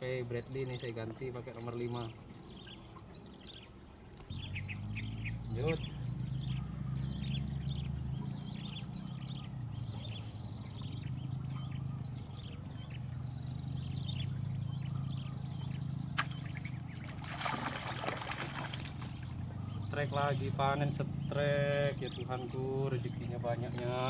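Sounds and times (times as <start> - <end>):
small birds chirping: 0.0 - 24.0
fish splashing at water surface: 16.2 - 19.3.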